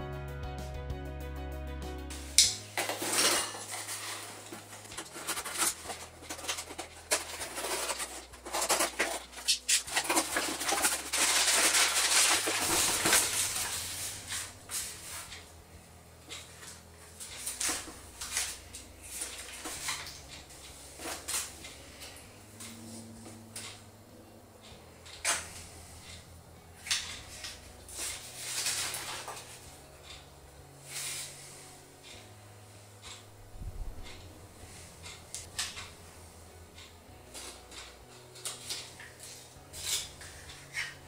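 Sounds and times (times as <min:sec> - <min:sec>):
packing paper crackling: 0:02.5 - 0:15.5, 0:26.8 - 0:29.6.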